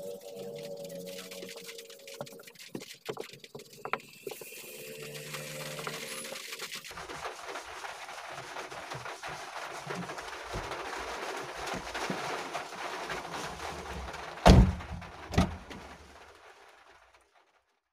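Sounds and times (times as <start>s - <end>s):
steady hiss: 0.0s - 16.7s
hand handling plastic dashboard: 14.4s - 15.8s.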